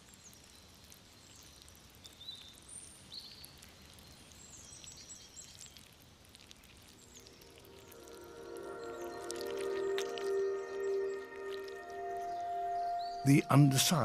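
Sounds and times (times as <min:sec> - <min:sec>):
low background hiss: 0:00.0 - 0:14.0
high chirps and whistles: 0:07.1 - 0:14.0.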